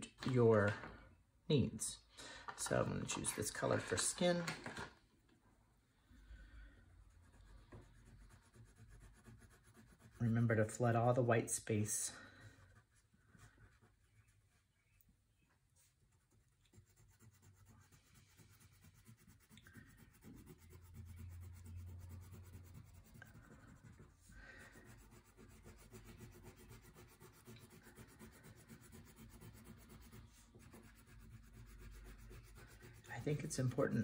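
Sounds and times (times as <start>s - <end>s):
crayon rubbing on paper: 7.0s - 10.8s, 15.8s - 34.0s.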